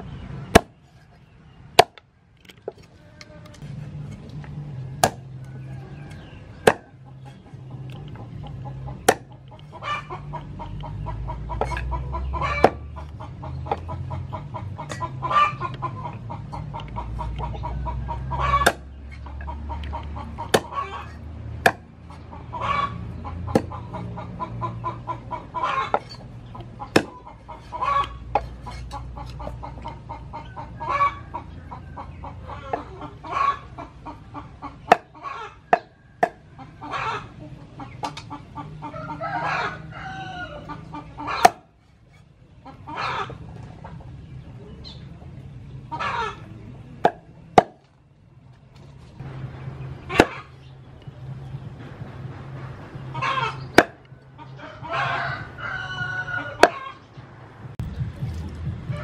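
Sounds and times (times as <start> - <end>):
hens clucking: 0.0 - 59.0
cleaver chopping on wooden board: 0.5 - 0.8, 1.8 - 2.0, 5.0 - 5.3, 6.6 - 7.0, 9.0 - 9.4, 12.6 - 12.8, 18.6 - 18.9, 20.4 - 20.8, 21.6 - 21.9, 23.5 - 23.7, 26.9 - 27.2, 34.9 - 35.1, 41.4 - 41.6, 47.0 - 47.9, 53.8 - 54.0.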